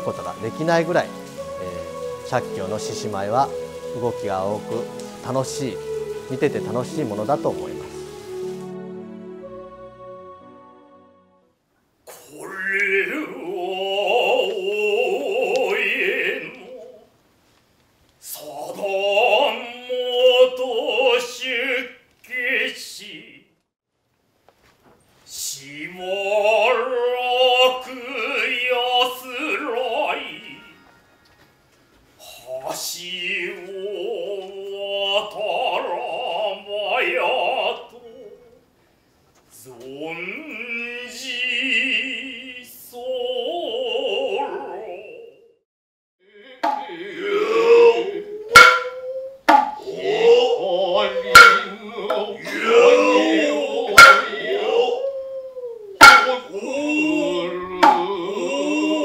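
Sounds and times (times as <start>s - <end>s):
man chanting with vibrato: 0.0s - 8.3s, 12.2s - 17.0s, 18.3s - 23.5s, 25.4s - 30.9s, 32.2s - 38.6s, 39.6s - 45.4s, 46.2s - 59.0s
wavering vocal calls: 0.0s - 10.9s, 12.1s - 17.2s, 32.2s - 38.7s, 39.6s - 45.6s, 46.3s - 59.0s
drums struck sharply: 54.0s - 54.3s, 57.8s - 58.1s.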